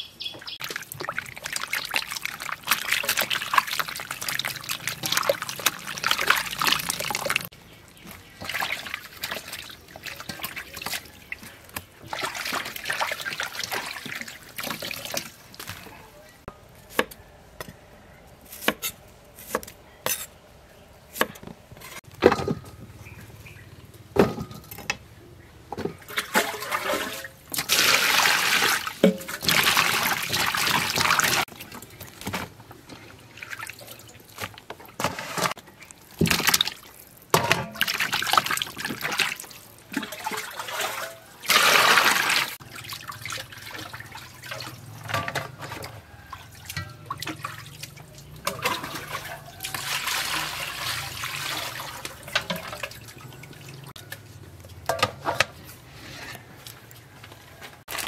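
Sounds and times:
water splashing in bowl: 0:00.4 - 0:15.9, 0:26.0 - 0:54.3.

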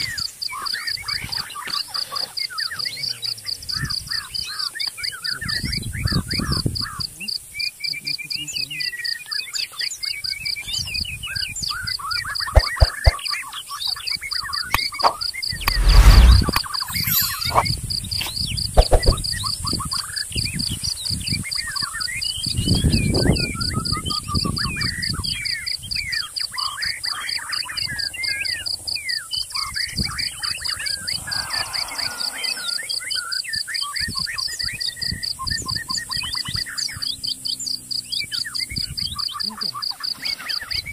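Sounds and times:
birds chirping: 0:11.6 - 0:17.7, 0:24.1 - 0:40.9
loud low rumble: 0:15.6 - 0:16.5.

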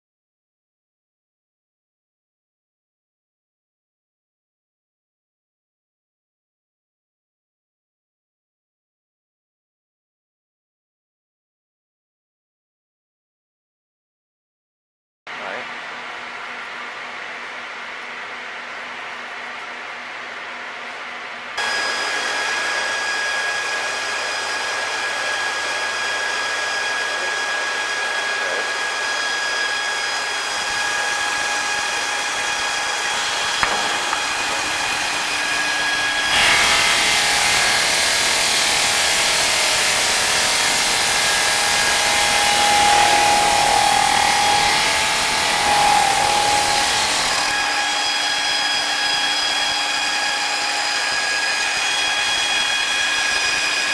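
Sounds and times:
stone saw whining: 0:16.2 - 0:53.9.

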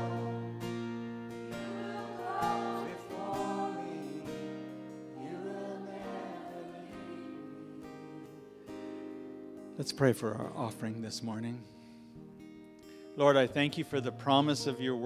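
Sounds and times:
acoustic guitar chords: 0:00.0 - 0:15.0
keyboard chords: 0:00.0 - 0:15.0
woman singing: 0:01.6 - 0:04.3.

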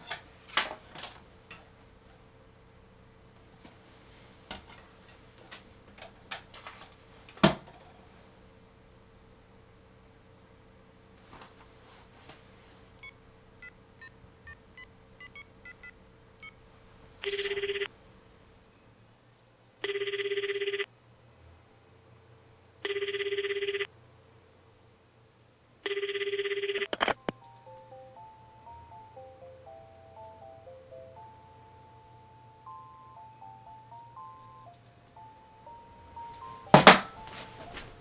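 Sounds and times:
phone keypad beeping: 0:13.0 - 0:16.6, 0:17.2 - 0:17.9, 0:25.9 - 0:37.8
phone ringing tones: 0:13.0 - 0:16.6, 0:17.2 - 0:17.9, 0:19.8 - 0:20.9, 0:22.8 - 0:23.9, 0:25.9 - 0:38.0
simple electronic tune: 0:27.0 - 0:38.0.

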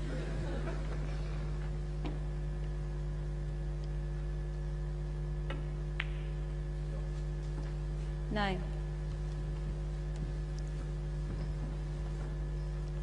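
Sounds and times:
low electrical hum: 0:00.0 - 0:13.0
snooker balls clicking: 0:05.4 - 0:06.5.

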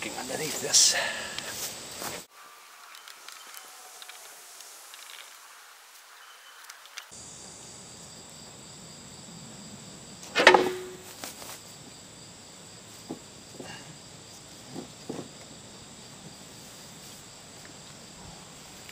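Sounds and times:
insects chirping: 0:00.0 - 0:18.9
heavy metal clank: 0:10.3 - 0:11.1.

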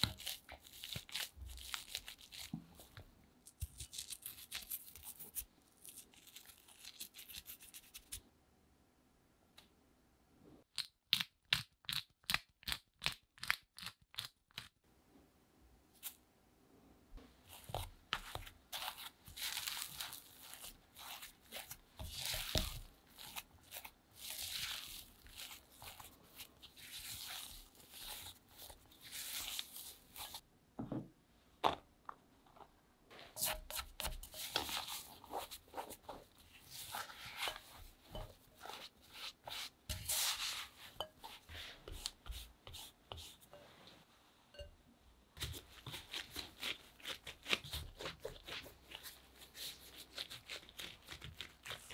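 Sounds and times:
mashed potato scraping and squishing: 0:00.0 - 0:08.2, 0:17.2 - 0:30.5, 0:32.6 - 0:43.7, 0:45.4 - 0:51.9.

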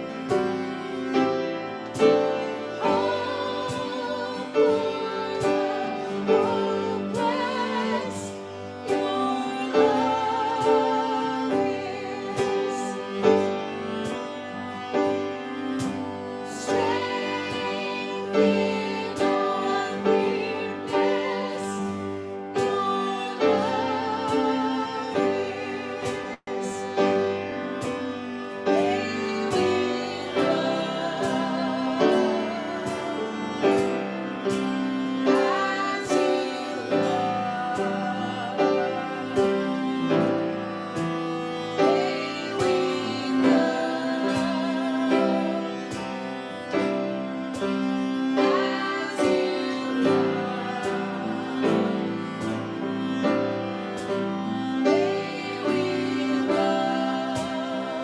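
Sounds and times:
cello: 0:00.0 - 0:58.0
piano: 0:00.0 - 0:58.0
worship song sung with vibrato: 0:00.0 - 0:58.0.

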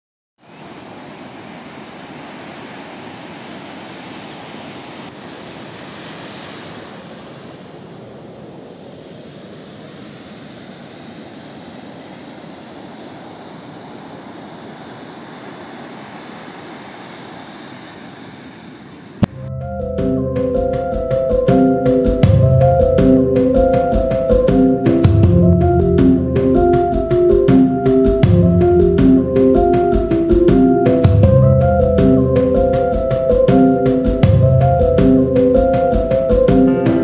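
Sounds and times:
waves breaking on beach: 0:00.4 - 0:19.4, 0:29.0 - 0:37.0.

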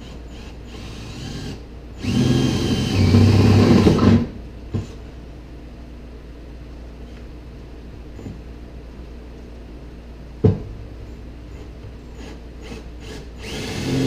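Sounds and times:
cordless drill boring through metal: 0:00.0 - 0:04.2, 0:12.2 - 0:14.0.

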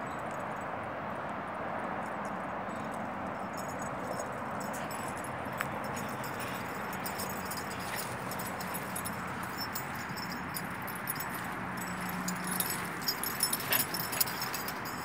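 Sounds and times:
collar jingling: 0:02.2 - 0:15.0.

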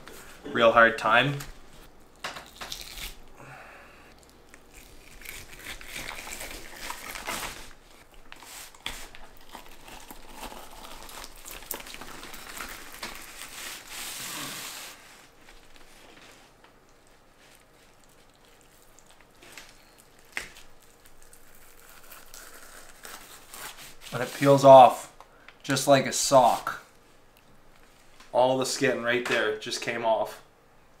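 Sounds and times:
wet skin tearing: 0:02.1 - 0:03.4, 0:04.2 - 0:14.2, 0:17.6 - 0:24.1
newspaper crinkling and rustling: 0:05.1 - 0:18.0.

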